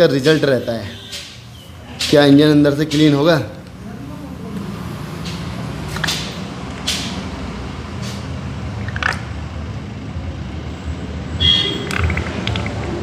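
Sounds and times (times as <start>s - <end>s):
plastic tube squishing and squirting: 8.8s - 9.3s.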